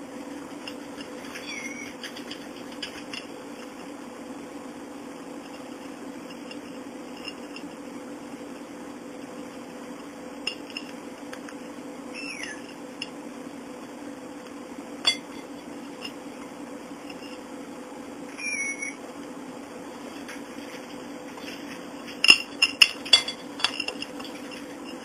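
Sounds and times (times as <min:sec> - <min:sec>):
bird pecking plastic toys: 0:00.7 - 0:03.3
short high bird calls: 0:01.3 - 0:02.0, 0:12.1 - 0:12.7, 0:18.3 - 0:19.0.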